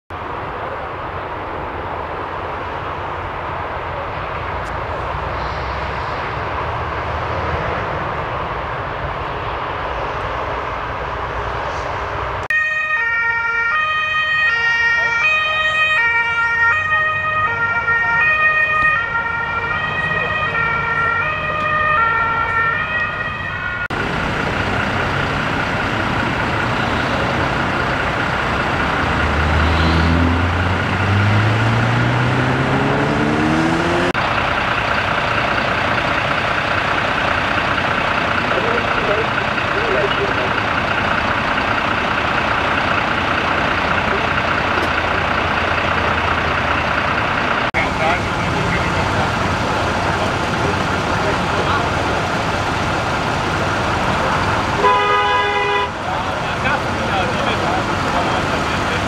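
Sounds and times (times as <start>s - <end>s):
motorway traffic rushing: 0.1s - 59.0s
two-tone siren: 12.5s - 24.0s
vehicle engine pulling away: 17.0s - 54.8s, 55.8s - 59.0s.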